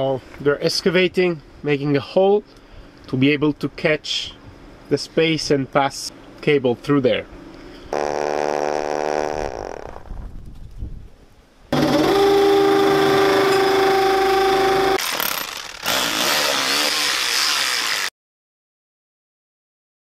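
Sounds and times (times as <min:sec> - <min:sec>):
cordless drill whining: 0:11.7 - 0:18.1.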